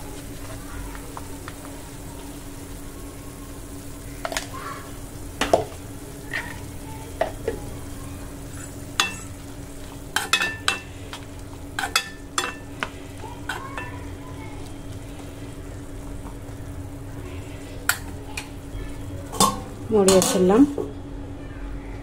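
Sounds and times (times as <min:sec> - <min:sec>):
vegetables sizzling softly: 0:00.0 - 0:22.0
spoon clicking and scraping pan: 0:10.2 - 0:11.2, 0:11.8 - 0:12.9.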